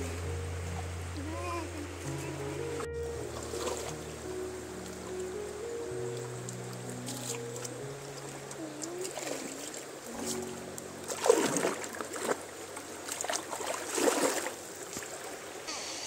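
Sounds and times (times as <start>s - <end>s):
soft background music: 0.0s - 12.4s
water splashing in a stream: 3.2s - 15.7s.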